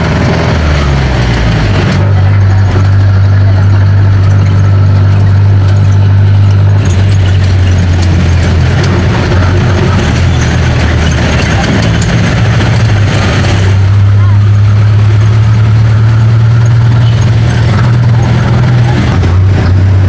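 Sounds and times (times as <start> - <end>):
diesel engine running: 0.0 - 20.0
road and traffic noise: 0.0 - 20.0.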